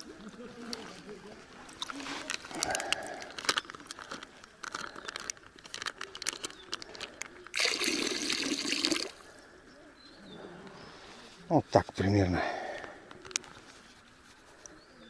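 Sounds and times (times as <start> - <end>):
water pouring onto river: 7.5 - 9.2.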